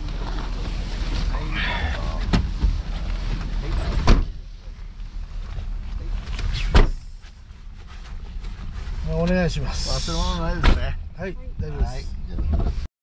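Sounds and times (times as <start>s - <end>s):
car engine idling: 0.0s - 11.6s
car doors thudding shut: 4.0s - 4.4s.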